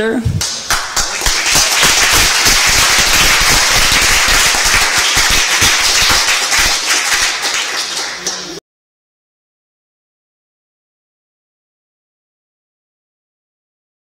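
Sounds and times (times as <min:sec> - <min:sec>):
audience applause: 0:00.4 - 0:08.6.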